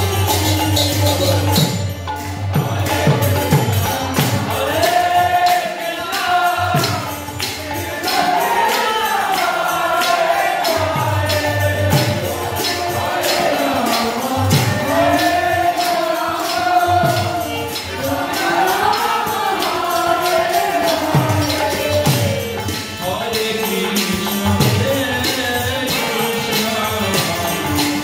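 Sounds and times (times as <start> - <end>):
harmonium: 0.0 - 28.0
jingling hand cymbals: 0.0 - 28.0.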